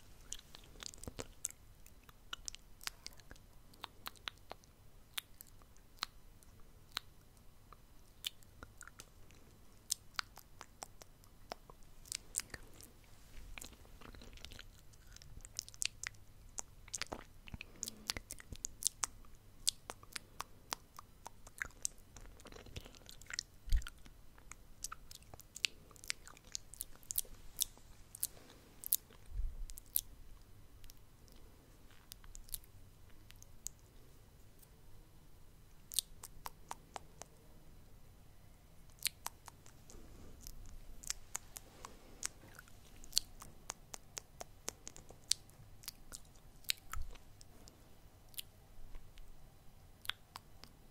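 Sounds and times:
wet mouth clicks and pops: 35.9 - 37.3, 38.9 - 41.6, 42.2 - 47.2, 50.0 - 50.7.

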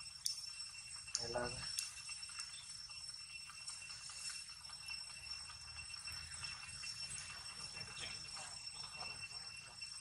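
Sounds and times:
high-pitched ringing tones: 0.0 - 10.0.

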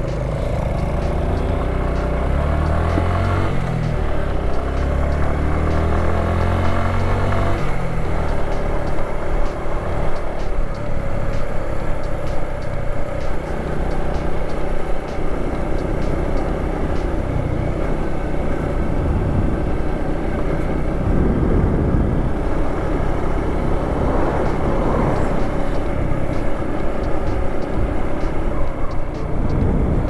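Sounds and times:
motorcycle engine running: 0.0 - 30.0
wind rushing over microphone: 18.9 - 19.7, 20.7 - 26.4, 29.2 - 30.0.

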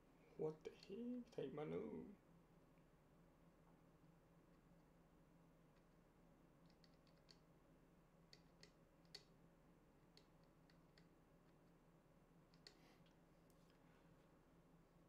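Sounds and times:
faint small clicks: 6.6 - 7.5, 8.3 - 9.4, 10.1 - 11.8, 12.5 - 13.8.

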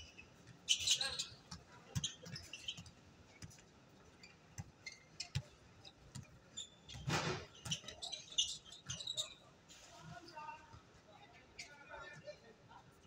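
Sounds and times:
sneaker squeaks: 0.0 - 3.0, 4.2 - 9.5.

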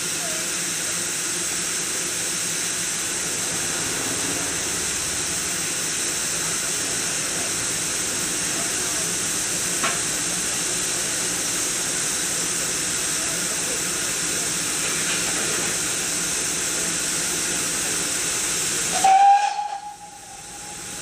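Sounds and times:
steady hiss of steam: 0.0 - 21.0
loud locomotive whistle blast: 18.9 - 21.0.

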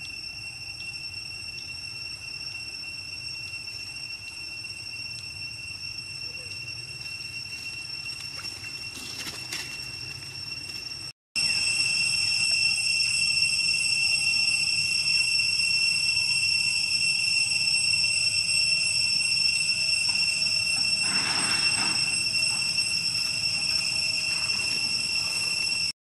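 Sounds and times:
cicadas droning: 0.0 - 26.0
dry leaves rustling: 7.0 - 11.0.

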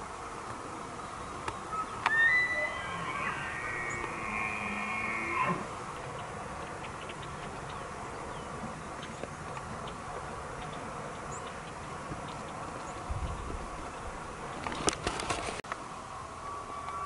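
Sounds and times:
insects buzzing: 0.7 - 8.6.

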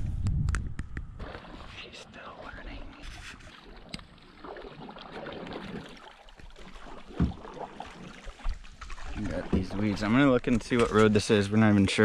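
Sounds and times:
wind rumble on microphone: 0.0 - 1.2
paddle splashing in water: 1.2 - 11.0.

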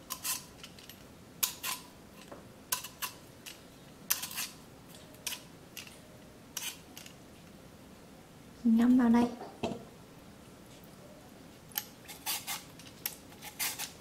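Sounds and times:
vegetable peeler scraping root: 4.1 - 4.6, 6.6 - 6.8, 12.1 - 14.0.

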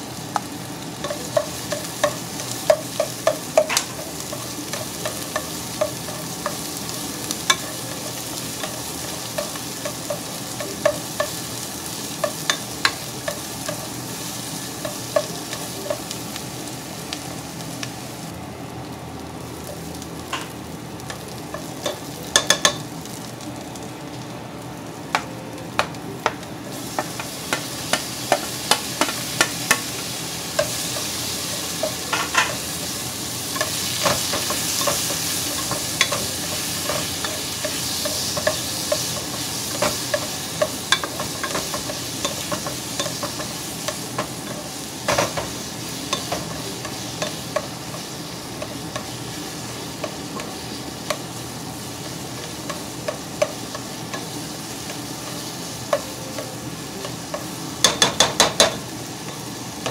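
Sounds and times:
onions sizzling in oil: 0.0 - 59.9
utensil tapping against pot: 57.8 - 58.8.

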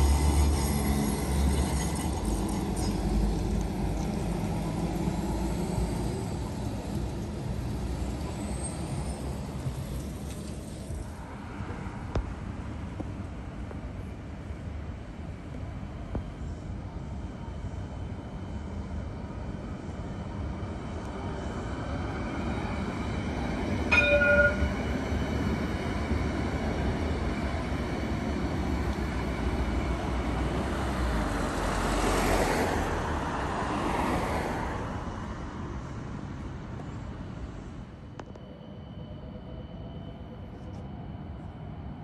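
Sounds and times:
light rail train passing: 0.0 - 42.0
train horn blast: 23.9 - 24.8.

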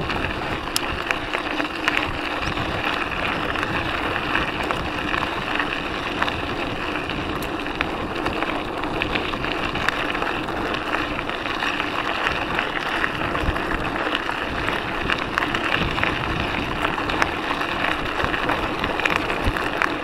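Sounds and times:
bike tyres rolling on gravel: 0.0 - 20.0
wind noise: 0.0 - 20.0.

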